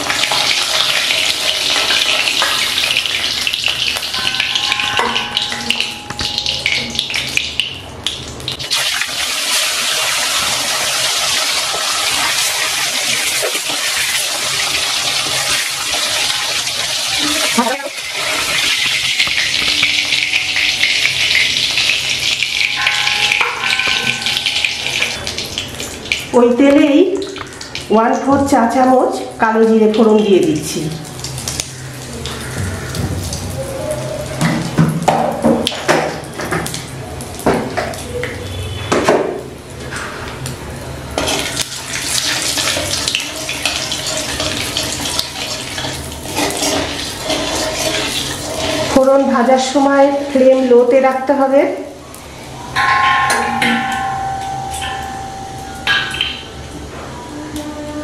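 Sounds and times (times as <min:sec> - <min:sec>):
hot oil sizzling and crackling: 0:00.0 - 0:57.3
metal spatula scraping wok: 0:45.8 - 0:49.0.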